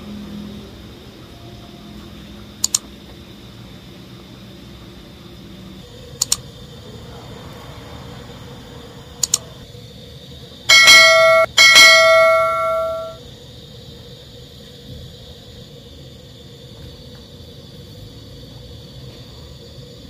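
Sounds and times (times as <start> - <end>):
bell ringing: 10.7 - 13.2.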